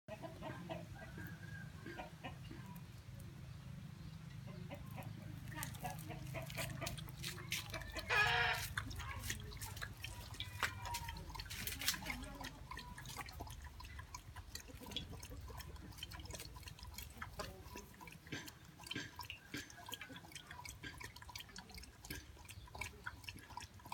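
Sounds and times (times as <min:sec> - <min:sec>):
dog chewing and smacking: 0:05.5 - 0:23.9.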